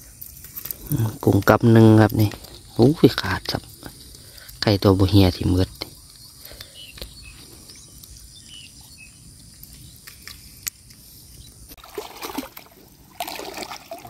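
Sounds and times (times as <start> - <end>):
water trickling and splashing: 11.7 - 14.0.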